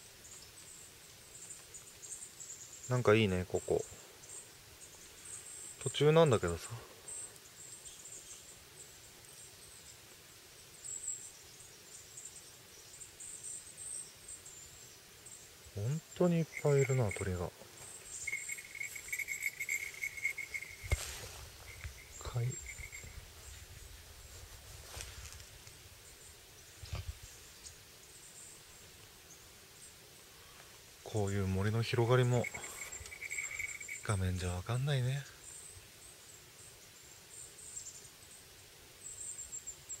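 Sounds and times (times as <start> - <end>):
songbirds chirping and trilling: 0.0 - 40.0
high-pitched songbird chirps: 18.1 - 21.0, 21.7 - 23.2, 32.1 - 34.1.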